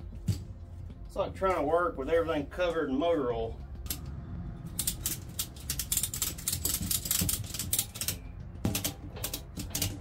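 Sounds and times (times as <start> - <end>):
tire clicking and crackling: 3.2 - 10.0.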